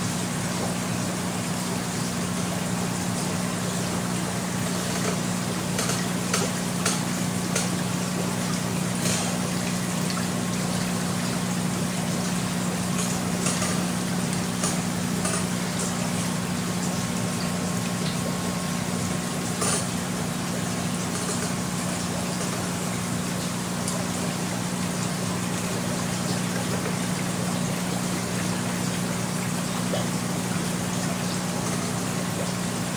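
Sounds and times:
aeration hum and watery hiss: 0:00.0 - 0:32.9
bubbles popping: 0:00.4 - 0:32.9.

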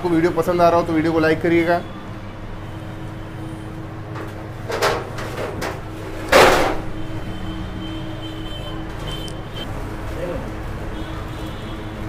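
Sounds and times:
loud clatter: 0:04.2 - 0:06.9.

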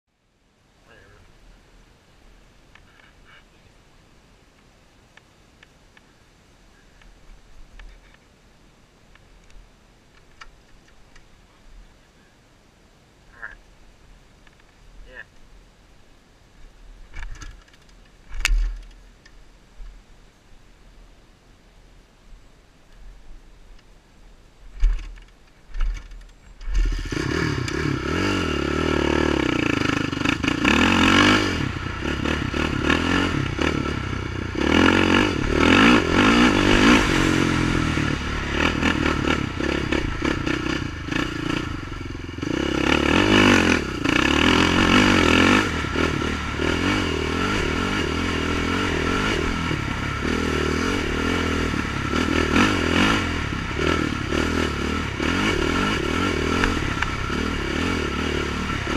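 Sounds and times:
quad engine revving: 0:26.7 - 0:58.9.

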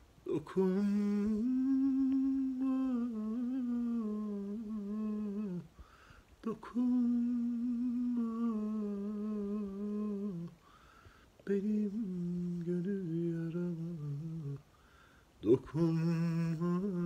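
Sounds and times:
man singing unaccompanied: 0:00.2 - 0:05.8, 0:06.4 - 0:10.6, 0:11.4 - 0:14.8, 0:15.4 - 0:17.0
quick breath: 0:05.8 - 0:06.4, 0:10.6 - 0:11.4, 0:14.7 - 0:15.4.

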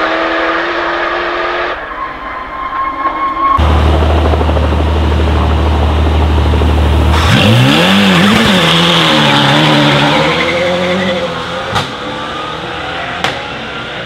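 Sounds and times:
car engine revving: 0:03.5 - 0:14.0.

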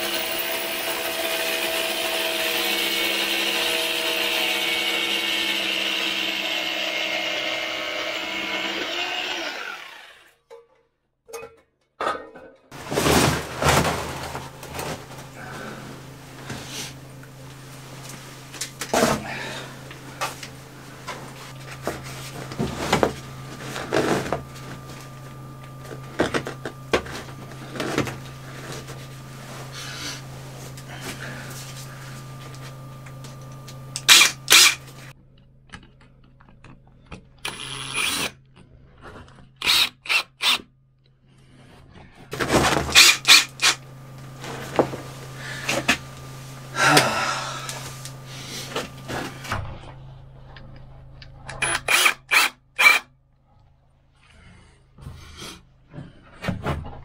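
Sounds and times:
steady low hum: 0:12.7 - 0:39.6, 0:40.8 - 0:51.9.

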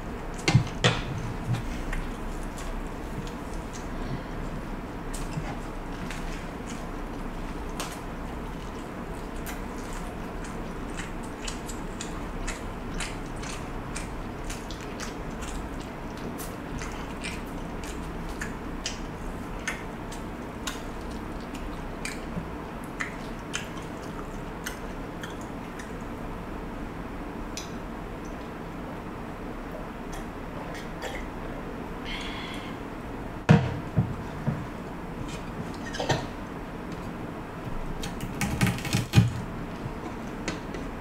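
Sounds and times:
steady low hum: 0:00.0 - 0:41.0
chewing mouth sounds: 0:01.7 - 0:26.2.

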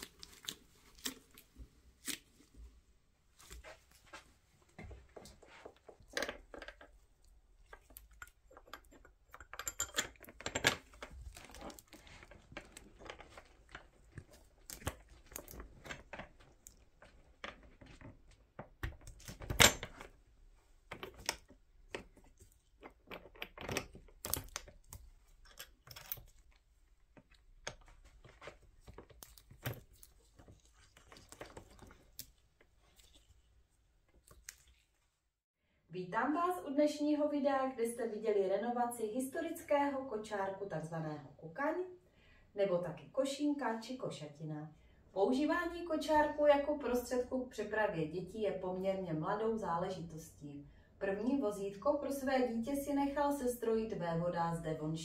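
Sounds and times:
wicker rustling and creaking: 0:10.2 - 0:18.5.

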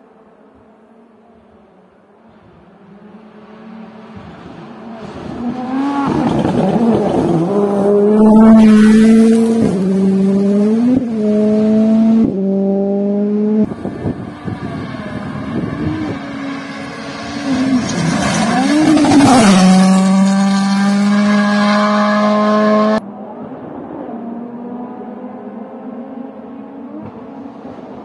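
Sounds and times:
rally car engine at high revs: 0:02.9 - 0:23.0.

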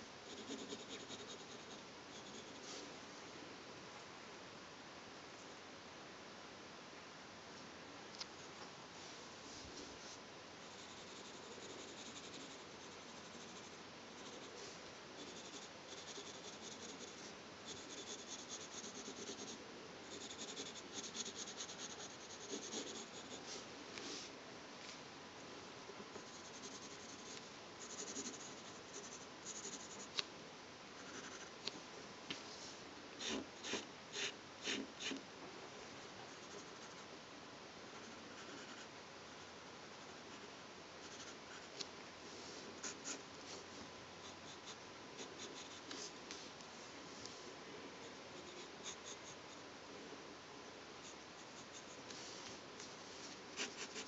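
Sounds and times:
pencil scratching on paper: 0:00.2 - 0:02.8, 0:10.7 - 0:23.5, 0:26.1 - 0:30.2, 0:31.0 - 0:31.5, 0:33.2 - 0:35.2, 0:37.9 - 0:38.8, 0:40.0 - 0:41.7, 0:44.2 - 0:46.1, 0:53.6 - 0:54.0.

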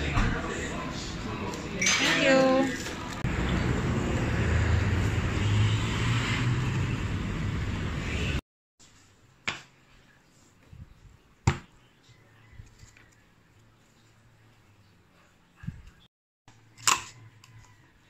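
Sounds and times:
street traffic rumble: 0:00.0 - 0:08.4.

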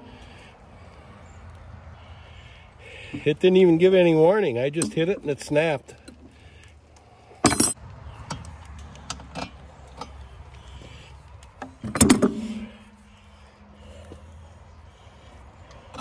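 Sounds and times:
metal tools clanking: 0:07.4 - 0:08.4.

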